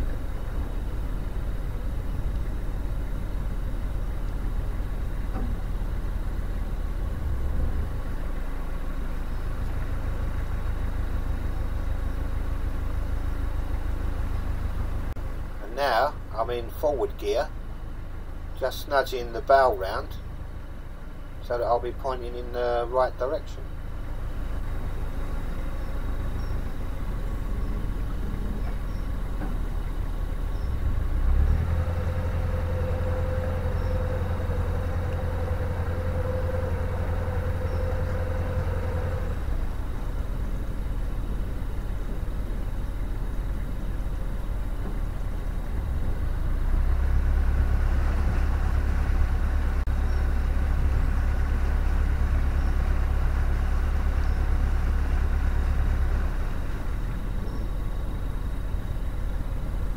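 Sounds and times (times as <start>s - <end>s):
diesel boat engine running: 0.0s - 59.9s.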